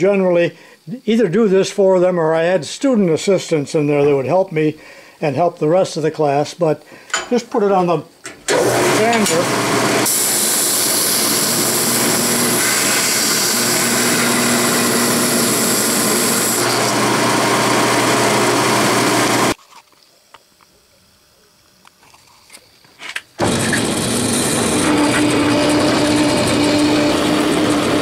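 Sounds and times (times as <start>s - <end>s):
sander grinding metal bar: 8.5s - 19.6s, 23.4s - 28.0s.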